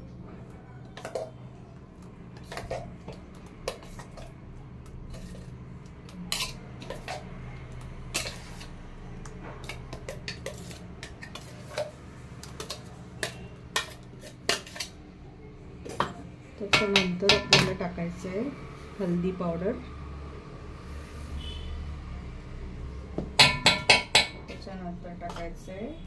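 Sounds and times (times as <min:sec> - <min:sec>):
metal spoon scraping steel basin: 0:05.1 - 0:05.5, 0:06.1 - 0:07.3, 0:08.0 - 0:08.8, 0:09.6 - 0:12.0, 0:12.6 - 0:15.0.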